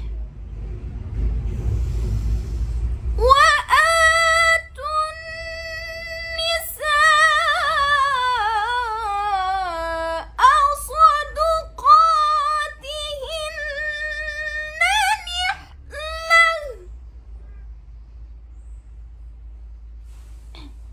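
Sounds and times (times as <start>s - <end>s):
woman reciting melodically: 3.2s - 16.9s.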